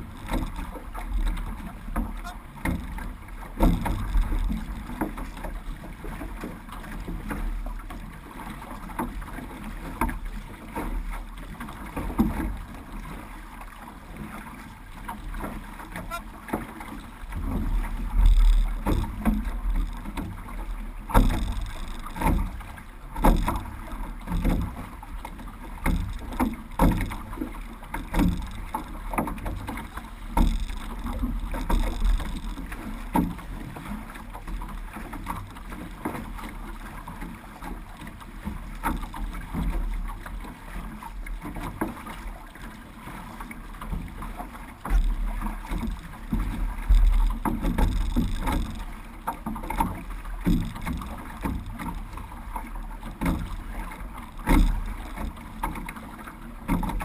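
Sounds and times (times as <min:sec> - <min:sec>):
water rushing along hull: 0:00.0 - 0:57.0
wind rumble on microphone: 0:17.3 - 0:36.3, 0:43.9 - 0:55.8.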